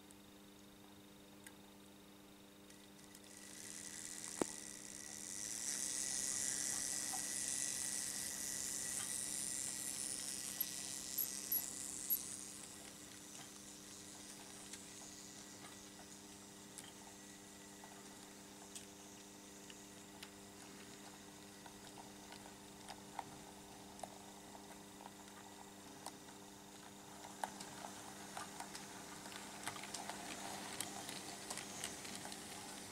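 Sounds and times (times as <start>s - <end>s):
electrical hum: 0.0s - 32.9s
model train running on track: 3.3s - 16.1s, 26.4s - 32.9s.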